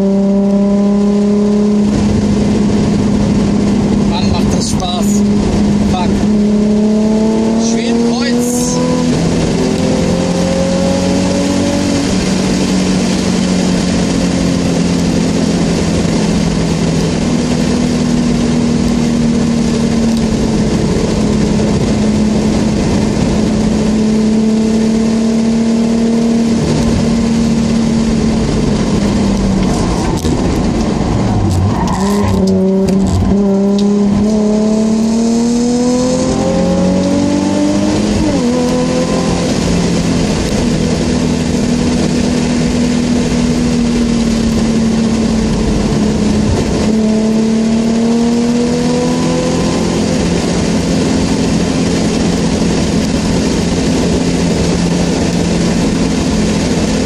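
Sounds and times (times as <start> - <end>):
car engine heard from cabin: 0.0 - 57.0.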